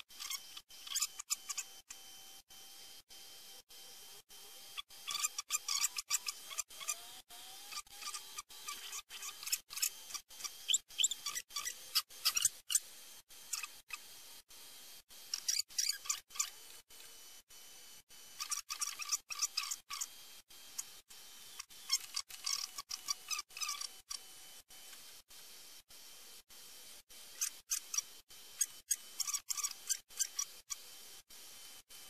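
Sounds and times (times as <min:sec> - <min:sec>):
screwdriver clicks and scratches: 0:04.8 - 0:12.9, 0:15.3 - 0:17.2, 0:18.4 - 0:20.1, 0:21.6 - 0:24.3.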